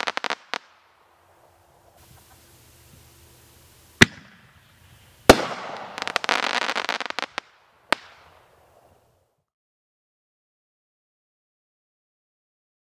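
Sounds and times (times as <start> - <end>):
firework shells bursting: 0.0 - 8.9.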